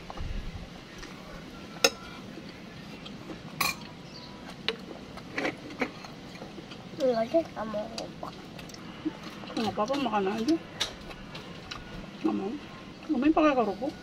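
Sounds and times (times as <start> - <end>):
metal spoons clinking against bowls: 1.8 - 2.1, 3.6 - 3.9.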